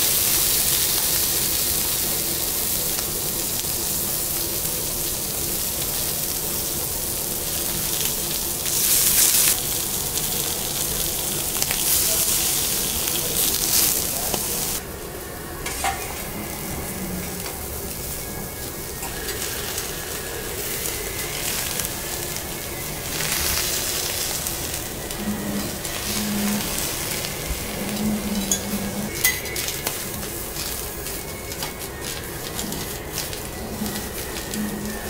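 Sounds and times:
greens sizzling on a griddle: 0.0 - 35.0.

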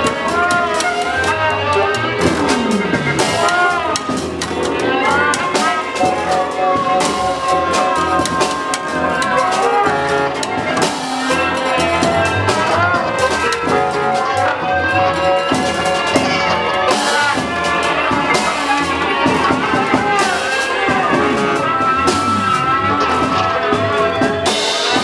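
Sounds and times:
drum hits: 0.0 - 25.0.

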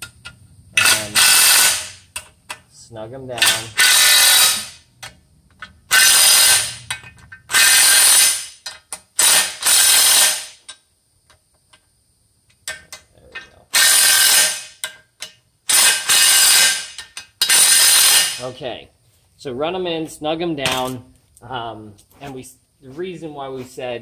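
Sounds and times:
cordless power driver running bolts: 0.8 - 1.9, 3.4 - 4.7, 5.9 - 6.9, 7.5 - 8.4, 9.2 - 10.4, 13.8 - 14.6, 15.7 - 16.8.

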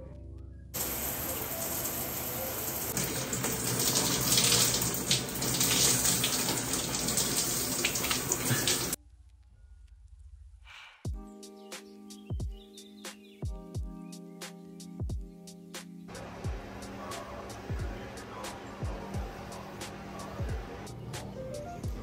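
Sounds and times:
shower spray splashing: 0.8 - 9.0.

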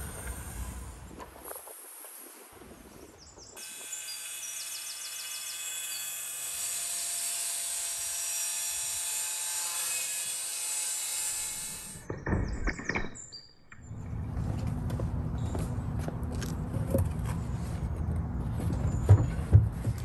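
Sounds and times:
circular saw cutting fibreboard: 3.6 - 12.1.

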